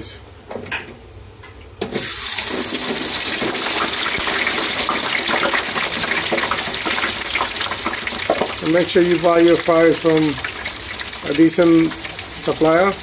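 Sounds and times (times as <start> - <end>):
hot oil hissing and bubbling: 1.9 - 13.0.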